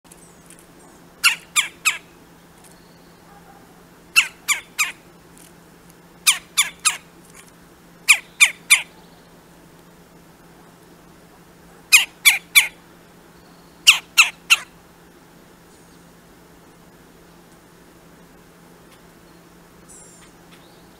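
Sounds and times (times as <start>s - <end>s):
woodpecker calling: 0.1s - 5.1s, 6.2s - 7.1s, 8.0s - 9.4s, 11.9s - 12.8s, 13.4s - 14.8s.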